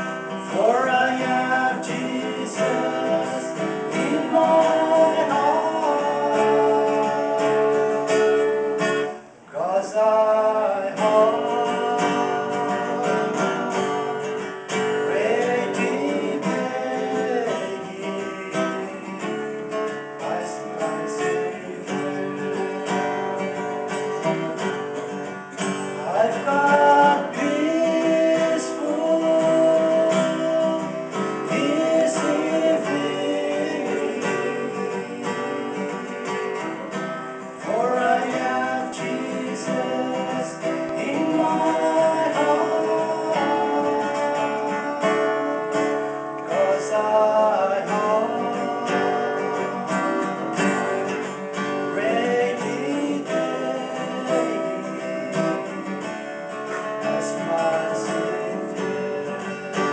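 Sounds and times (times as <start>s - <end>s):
man singing: 0.0s - 23.2s, 25.6s - 59.9s
strummed acoustic guitar: 0.0s - 59.9s.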